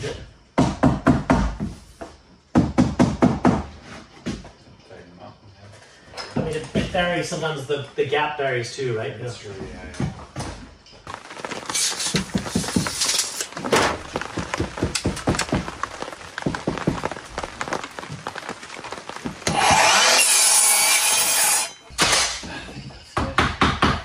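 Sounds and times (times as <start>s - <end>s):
wood board knocking and scraping: 10.0s - 21.4s
miter saw cutting wood: 19.4s - 21.8s.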